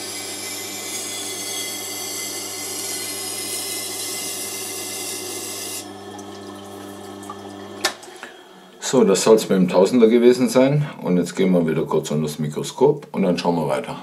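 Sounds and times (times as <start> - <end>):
blade grinding on sharpening wheel: 0.0 - 5.9
motor hum: 1.8 - 9.6.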